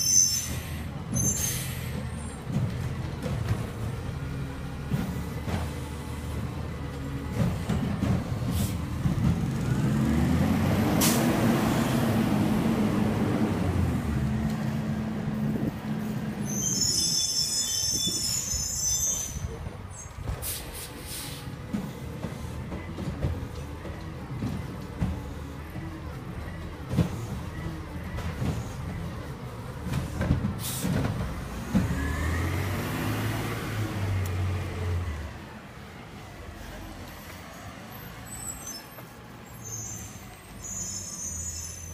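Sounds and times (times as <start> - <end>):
high-pitched brake squeals: 0.0 - 2.4, 16.4 - 20.2, 37.1 - 41.9.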